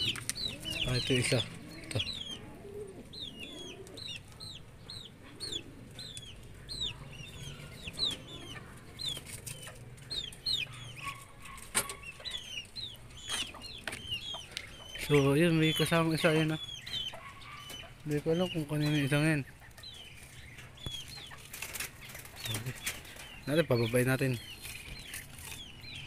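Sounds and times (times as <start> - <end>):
pigeon cooing: 0.0 - 19.1
small birds chirping: 0.0 - 26.0.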